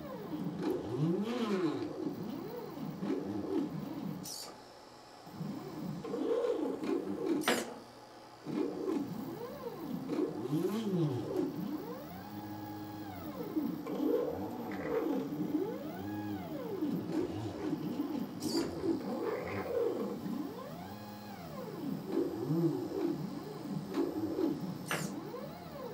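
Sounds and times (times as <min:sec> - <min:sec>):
stepper motors whining: 0:09.2 - 0:25.9
sharp click: 0:24.8 - 0:25.2.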